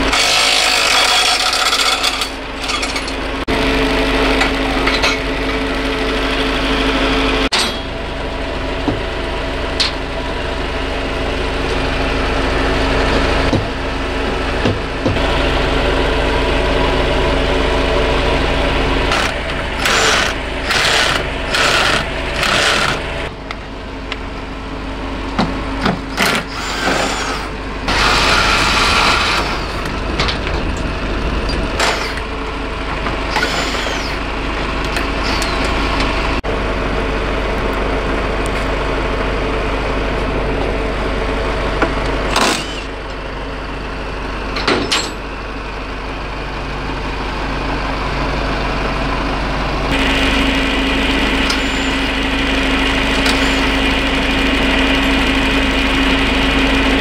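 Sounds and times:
steady hum: 0.0s - 44.0s
truck engine running: 0.0s - 57.0s
loud mechanical bursts: 19.1s - 23.3s, 26.0s - 34.4s, 42.3s - 43.0s.

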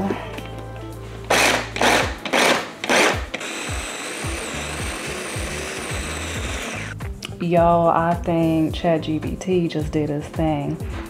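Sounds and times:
food processor grinding nuts: 1.3s - 7.0s.

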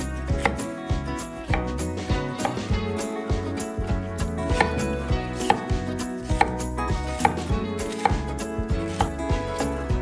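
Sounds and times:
background music: 0.0s - 10.0s
knife strikes on wooden board: 0.3s - 0.7s, 1.4s - 2.8s, 4.5s - 9.4s.

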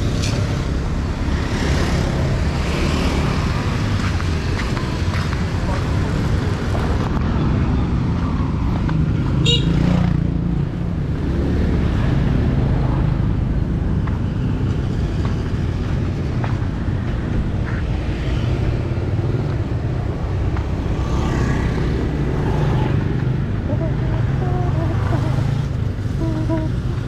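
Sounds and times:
motorbike and car engines: 0.0s - 27.0s.

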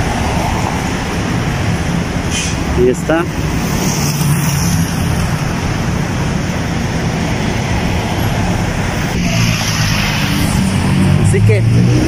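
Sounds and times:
road traffic: 0.0s - 12.0s
vehicle passing close by: 0.0s - 12.0s.

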